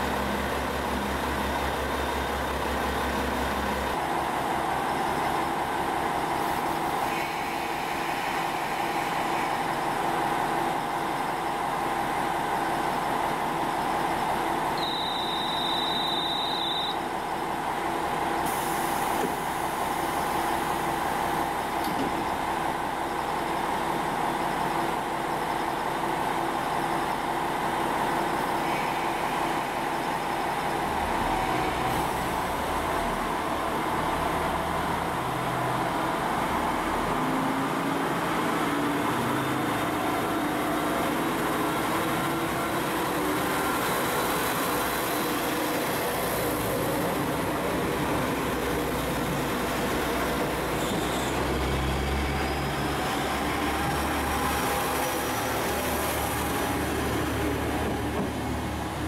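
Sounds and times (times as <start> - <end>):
diesel railcar engine: 0.0 - 59.0
high steady beep: 14.8 - 17.0.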